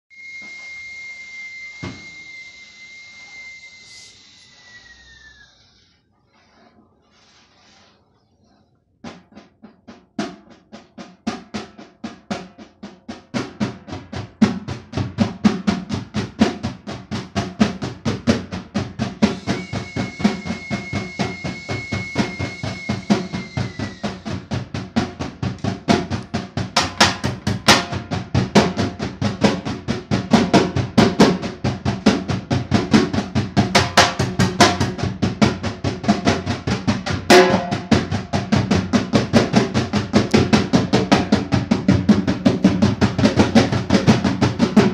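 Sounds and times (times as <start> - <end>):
high whistle-like tone: 0.1 - 6.0, 19.2 - 24.5
fast hand drumming: 9.2 - 44.9.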